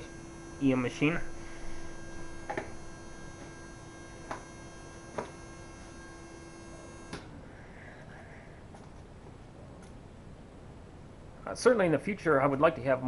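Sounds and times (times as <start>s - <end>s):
thin high whine: 0.0s - 7.7s
machine electrical hum: 0.0s - 13.0s.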